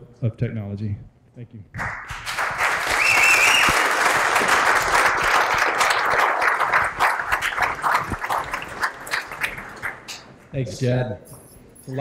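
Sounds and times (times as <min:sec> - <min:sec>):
audience applauding: 0:01.8 - 0:10.4
high whistle: 0:02.9 - 0:03.9.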